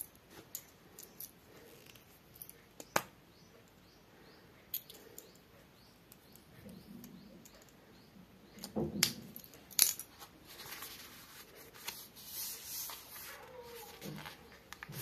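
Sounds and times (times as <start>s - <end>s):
plastic-covered diary rustling: 10.1s - 15.0s.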